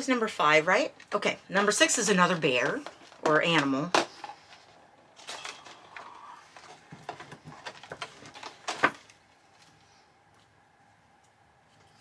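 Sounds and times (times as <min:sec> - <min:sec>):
packaging rustling: 0:02.5 - 0:09.7.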